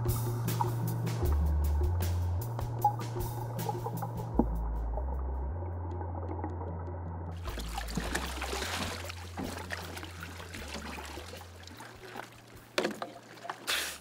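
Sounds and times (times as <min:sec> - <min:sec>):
water splashing off wetsuit: 0:07.4 - 0:14.0.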